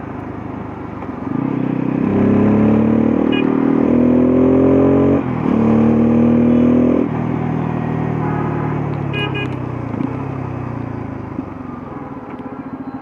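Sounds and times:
horn beep: 0:03.2 - 0:03.7, 0:08.1 - 0:09.6.

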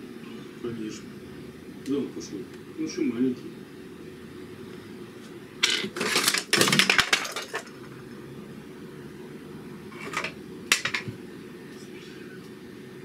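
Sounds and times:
small hard objects rattling: 0:05.6 - 0:07.7.

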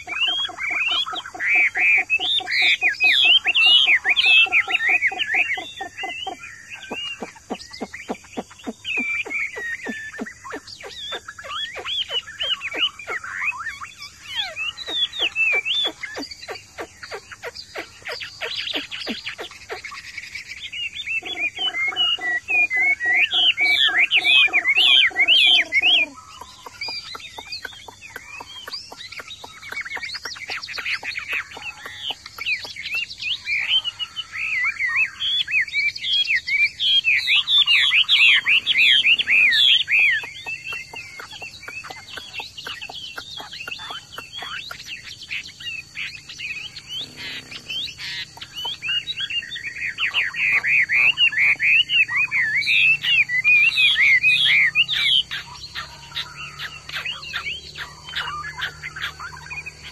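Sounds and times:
bird singing whistled phrases: 0:21.0 - 0:59.9.

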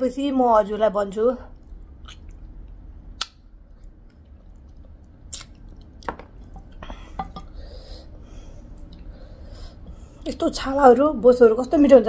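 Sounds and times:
person chewing: 0:01.6 - 0:07.6
wet mouth smacks: 0:02.0 - 0:02.5, 0:03.2 - 0:03.4, 0:05.3 - 0:06.1.

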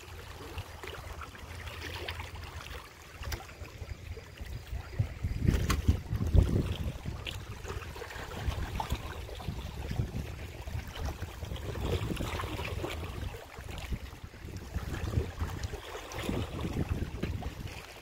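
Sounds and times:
small waves lapping: 0:00.0 - 0:18.0
wind rumbling on microphone: 0:03.7 - 0:18.0.

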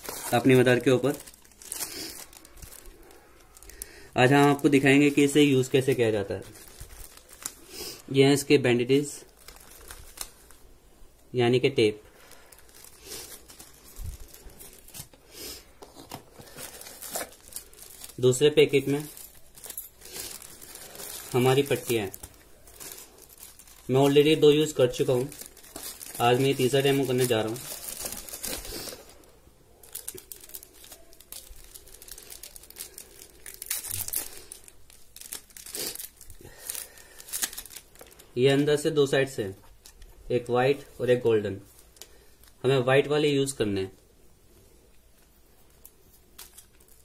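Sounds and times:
packet and paper crinkling: 0:00.0 - 0:08.2, 0:08.8 - 0:10.6, 0:12.1 - 0:38.7, 0:45.6 - 0:47.0.

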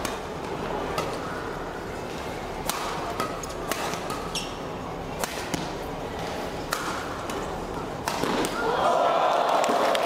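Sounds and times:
crowd noise: 0:00.0 - 0:10.0
rackets striking shuttlecock: 0:02.6 - 0:04.5, 0:05.2 - 0:08.6
shoe squeak on court: 0:04.2 - 0:04.6.

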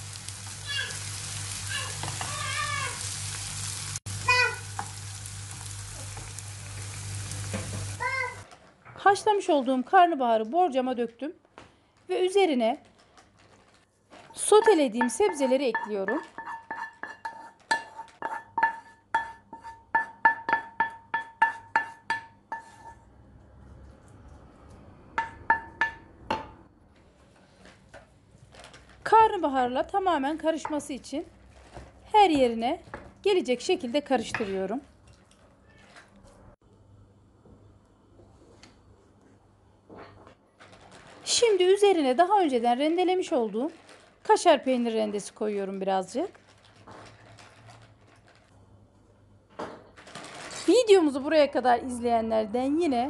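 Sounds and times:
vegetables sizzling in a pan: 0:00.0 - 0:08.4
wooden spoon tapping frying pan: 0:20.0 - 0:22.7
cat meowing: 0:35.6 - 0:36.0.

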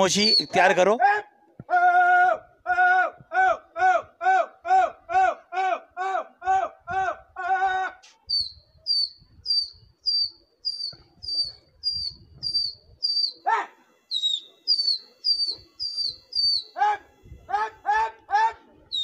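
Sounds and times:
small bird chirping: 0:00.1 - 0:00.6, 0:08.1 - 0:16.8
lower bird call: 0:07.8 - 0:19.0.

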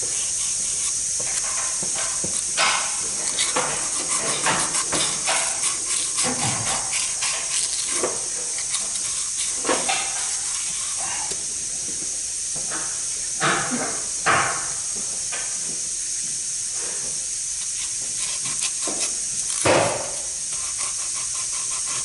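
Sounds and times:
steady high hiss: 0:00.0 - 0:22.0.

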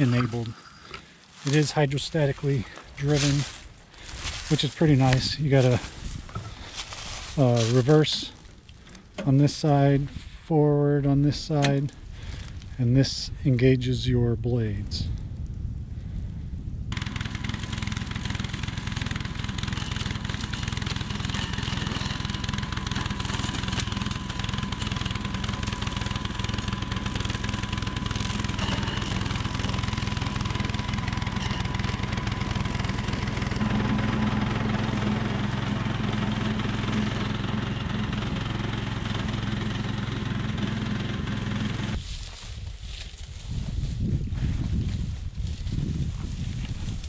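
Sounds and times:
brush cutter engine running: 0:00.0 - 0:09.3, 0:16.9 - 0:43.1.

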